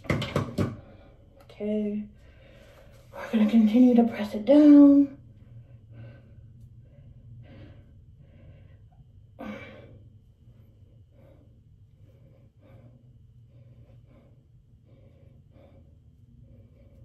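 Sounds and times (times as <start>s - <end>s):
faint low hum: 0.0s - 17.0s
person breathing: 2.1s - 3.3s, 5.2s - 17.0s.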